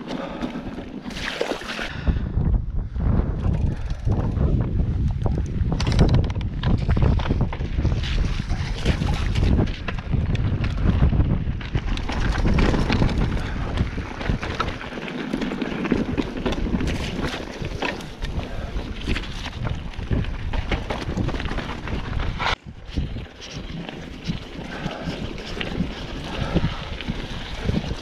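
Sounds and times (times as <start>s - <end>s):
wind rumbling on microphone: 0.2s - 28.0s
bike tyres clattering over stones: 5.8s - 28.0s.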